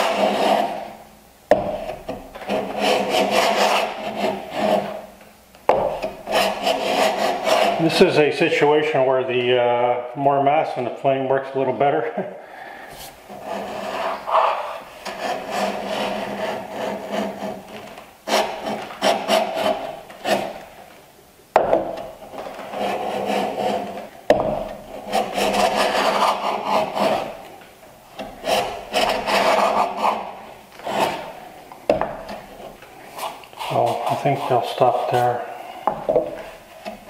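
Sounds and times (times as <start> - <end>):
plane shaving wood: 0.0 - 0.9, 1.7 - 5.0, 6.0 - 8.0, 13.3 - 20.7, 21.8 - 37.0.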